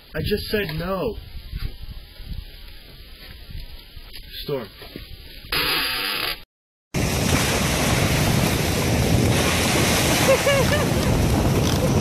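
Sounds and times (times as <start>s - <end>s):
short squeaky sounds: 5.5s - 6.5s
small waves breaking on beach: 7.0s - 12.0s
wind buffeting microphone: 7.0s - 12.0s.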